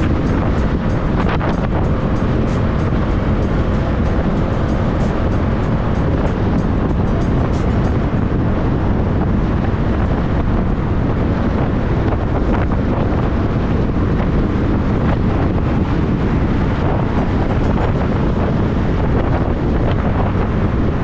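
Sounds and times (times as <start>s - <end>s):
motorcycle engine running: 0.0s - 21.0s
road noise: 0.0s - 21.0s
wind buffeting microphone: 0.0s - 21.0s.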